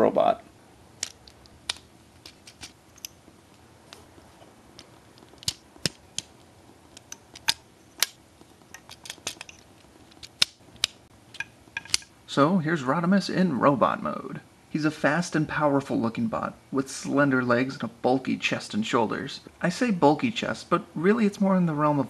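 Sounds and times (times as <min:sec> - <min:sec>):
plastic toy parts clicking and snapping: 0:01.0 - 0:03.2, 0:04.8 - 0:12.1.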